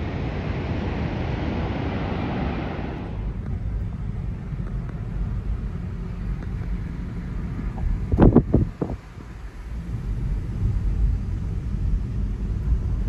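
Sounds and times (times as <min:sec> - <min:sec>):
car road rumble: 0:00.0 - 0:13.0.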